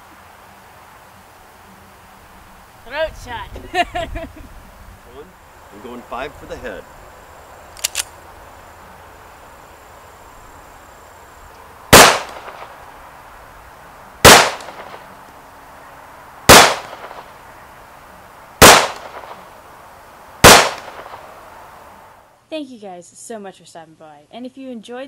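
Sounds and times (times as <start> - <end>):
pistol shots with echo: 11.9 - 12.8, 14.2 - 15.0, 16.5 - 17.3, 18.6 - 19.4, 20.4 - 21.3.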